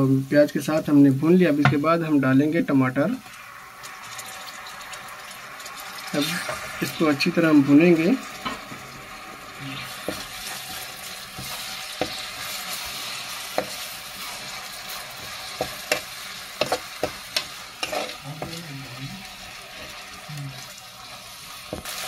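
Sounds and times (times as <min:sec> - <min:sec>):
food sizzling in hot oil: 0:00.0 - 0:22.0
spatula scraping a pan: 0:09.6 - 0:18.7.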